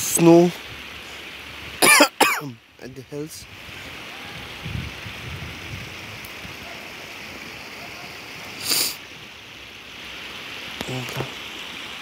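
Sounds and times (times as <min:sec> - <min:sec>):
river water rushing over stones: 0:00.0 - 0:12.0
short sharp hiss: 0:08.5 - 0:09.0.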